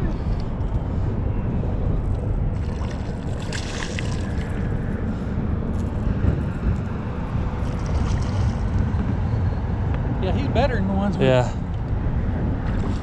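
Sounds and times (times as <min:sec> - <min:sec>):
wind buffeting microphone: 0:00.0 - 0:13.0
fish splashing water: 0:02.6 - 0:04.8.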